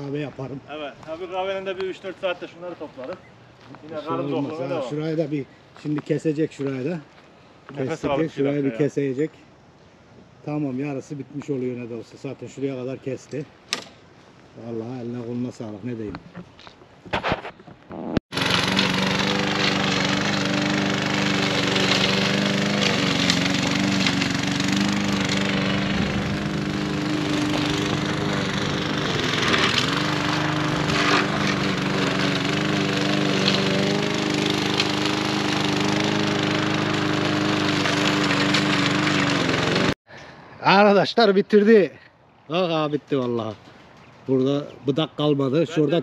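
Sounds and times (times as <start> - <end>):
lawn mower engine running: 18.3 - 40.0.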